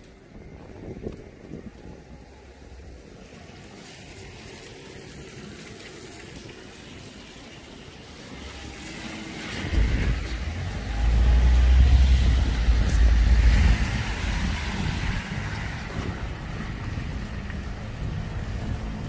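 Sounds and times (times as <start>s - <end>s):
wind on microphone: 0.0s - 3.0s, 8.2s - 19.0s
traffic hiss on wet road: 0.0s - 19.0s
car tyres hissing on wet asphalt: 0.3s - 19.0s.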